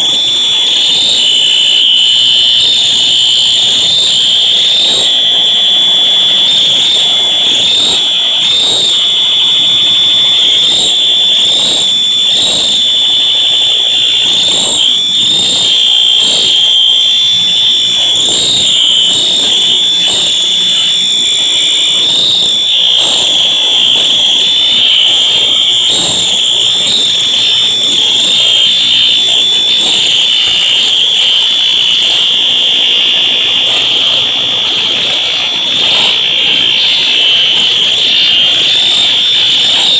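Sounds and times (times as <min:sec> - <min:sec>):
fire alarm horn tone: 0:00.0 - 0:39.9.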